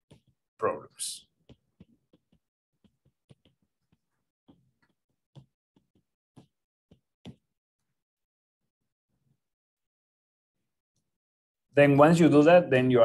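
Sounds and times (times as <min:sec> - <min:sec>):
stylus tapping on tablet screen: 0:01.4 - 0:07.5.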